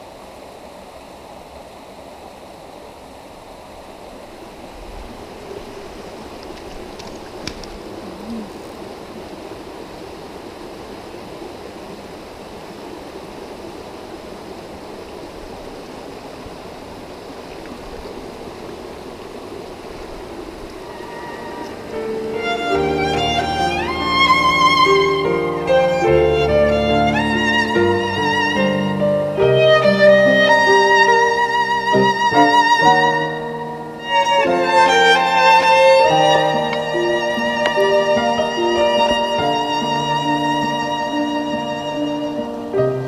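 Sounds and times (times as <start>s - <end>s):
stream rushing over rocks: 0.0s - 43.0s.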